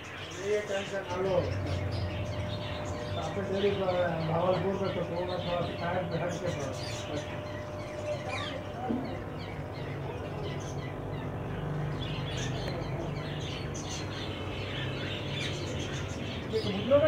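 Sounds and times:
small birds chirping: 0:00.0 - 0:17.0
steady low hum: 0:00.0 - 0:17.0.

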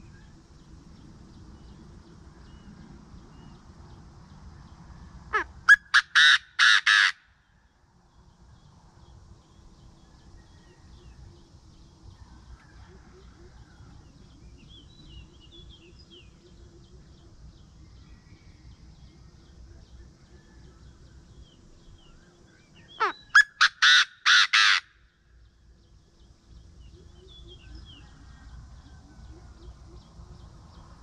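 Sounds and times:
small birds chirping faintly: 0:00.0 - 0:31.0
francolin call: 0:05.3 - 0:07.4, 0:22.8 - 0:25.2.

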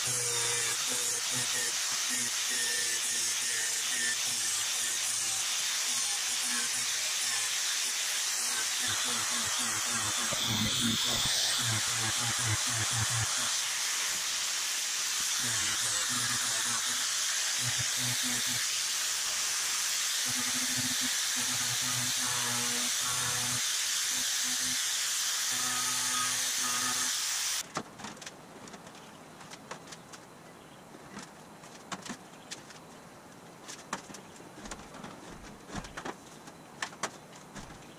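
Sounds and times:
angle grinder sanding metal: 0:00.0 - 0:27.6.

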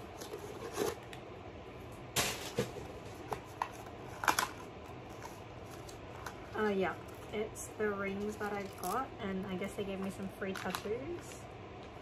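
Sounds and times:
paper packaging crinkling: 0:03.1 - 0:07.4, 0:10.0 - 0:11.4.

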